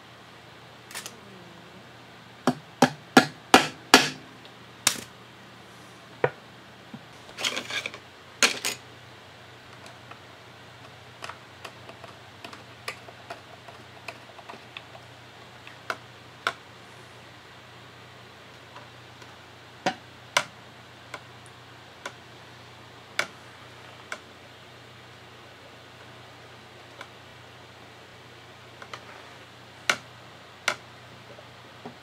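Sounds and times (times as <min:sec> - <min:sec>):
sharp knocks on wooden box: 0:02.5 - 0:04.2.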